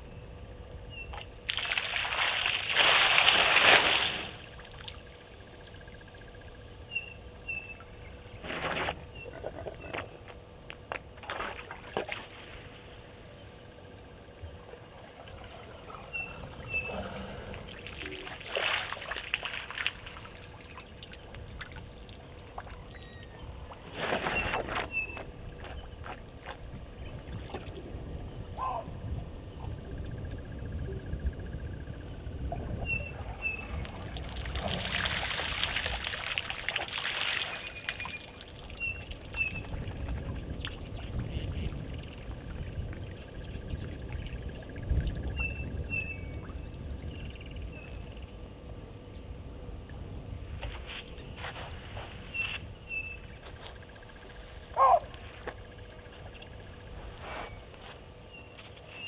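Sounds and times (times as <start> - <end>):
water sloshing and pouring from trunk: 1.5 - 5.0, 17.5 - 23.0, 33.9 - 43.2.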